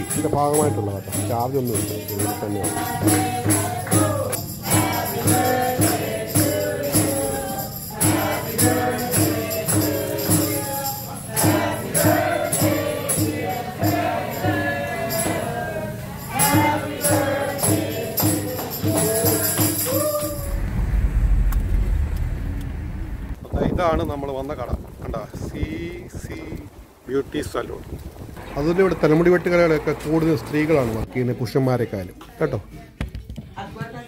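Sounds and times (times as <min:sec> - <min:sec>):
clapping and percussion beat: 0:00.0 - 0:13.7, 0:16.3 - 0:20.5
people singing in chorus: 0:00.0 - 0:21.1
car driving rumble: 0:20.3 - 0:25.0, 0:28.1 - 0:31.1.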